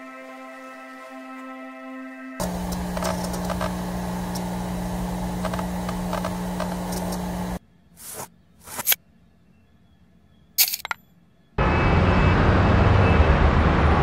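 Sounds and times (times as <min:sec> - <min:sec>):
scattered clicks: 0:02.4 - 0:07.3
electrical hum with crackle: 0:02.4 - 0:07.6.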